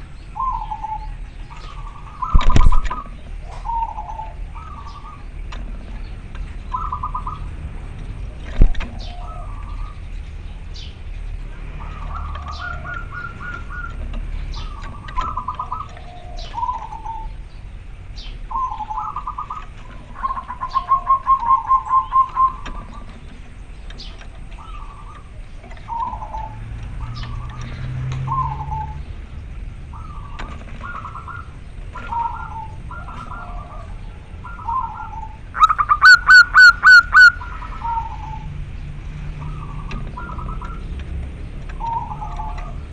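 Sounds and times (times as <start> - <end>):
dove cooing: 0.0 - 5.4, 6.7 - 7.5, 8.5 - 10.0, 11.8 - 17.5, 18.5 - 23.3, 24.4 - 29.1, 29.8 - 38.6, 39.4 - 40.9, 41.8 - 42.9
sharp click: 2.3 - 3.2.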